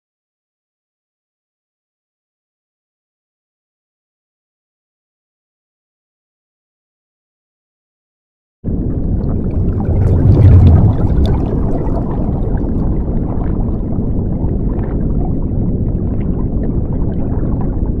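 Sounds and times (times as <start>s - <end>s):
underwater bubbling rumble: 8.7s - 18.0s.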